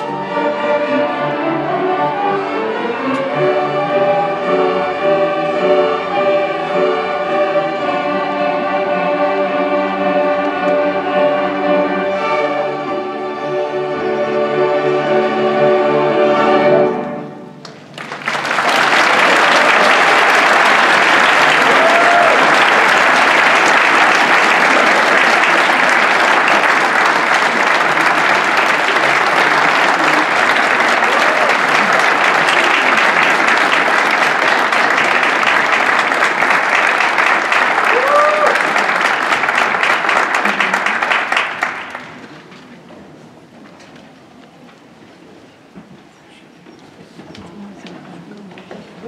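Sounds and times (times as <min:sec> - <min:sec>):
audience applause: 0:17.6 - 0:42.5.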